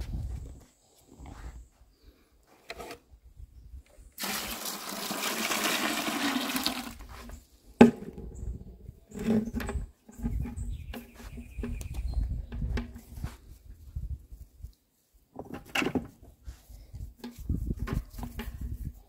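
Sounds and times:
water poured splashing: 0:04.2 - 0:07.0.

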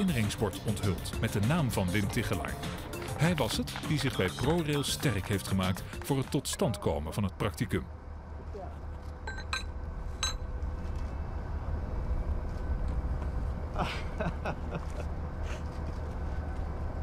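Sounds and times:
low outdoor rumble: 0:05.8 - 0:17.0.

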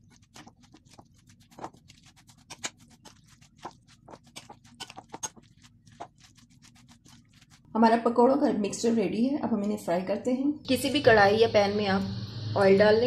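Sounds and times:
metal spoon stirring in glass bowl: 0:00.1 - 0:07.6.

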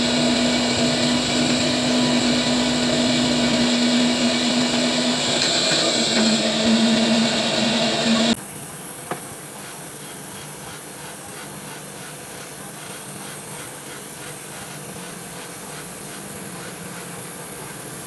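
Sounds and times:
low hum: 0:00.0 - 0:08.4
high-pitched whine: 0:00.0 - 0:08.8.

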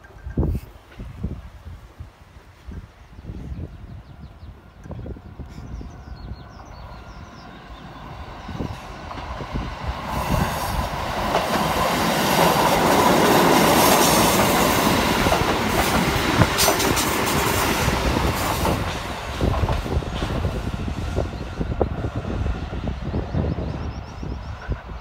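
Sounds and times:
electric trains passing: 0:00.0 - 0:25.0.

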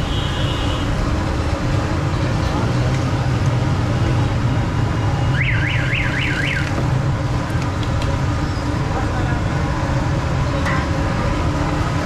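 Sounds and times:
traffic rumble: 0:00.0 - 0:12.0
electronic siren warbling: 0:05.4 - 0:06.7.

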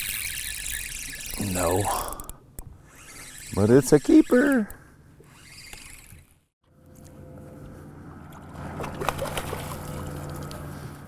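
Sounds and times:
boat motor humming: 0:00.0 - 0:11.0
water splashing and sloshing: 0:08.2 - 0:11.0.

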